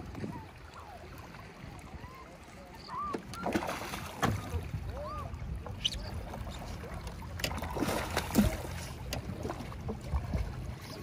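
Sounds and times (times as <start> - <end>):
fish splashing in water: 3.1 - 4.7, 5.7 - 10.0.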